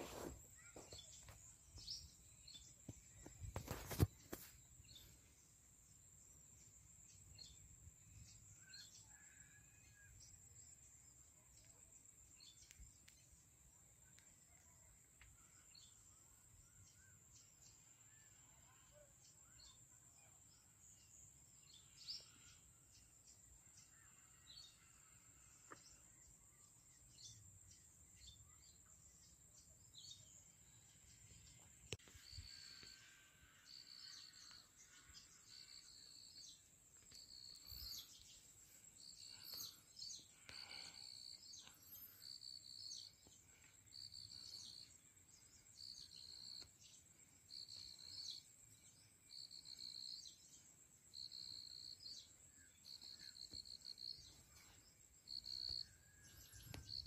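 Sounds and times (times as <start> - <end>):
insects droning: 20.6 - 57.0
bird chirps: 23.4 - 57.0.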